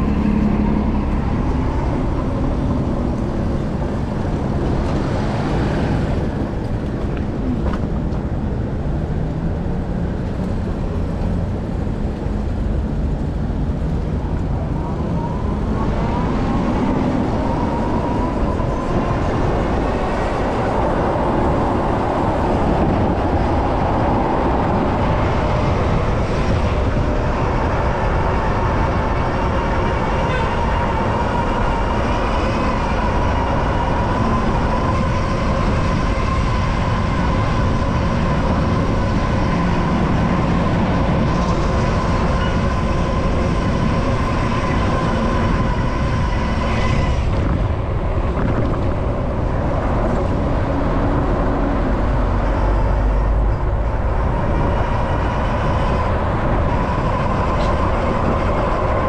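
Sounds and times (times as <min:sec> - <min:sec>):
road noise: 0:00.0 - 0:59.0
wind rumble: 0:00.0 - 0:59.0.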